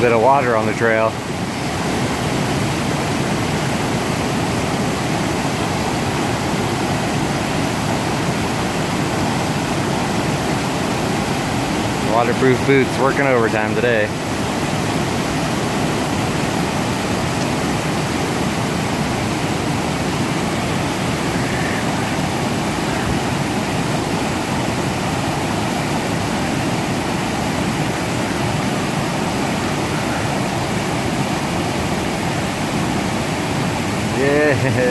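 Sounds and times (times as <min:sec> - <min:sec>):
creek rushing over rocks: 0:00.0 - 0:34.9.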